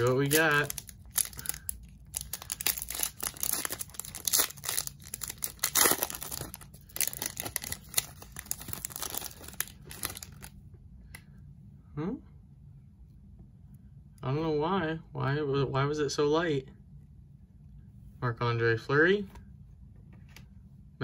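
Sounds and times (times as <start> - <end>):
foil wrapper tearing and crinkling: 0.0 - 10.5.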